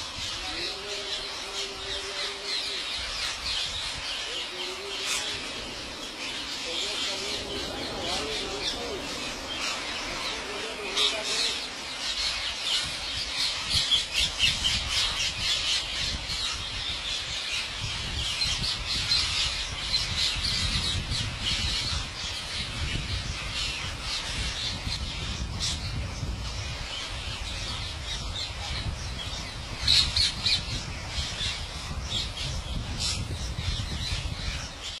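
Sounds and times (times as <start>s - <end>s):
parakeets squawking: 0.0s - 18.0s.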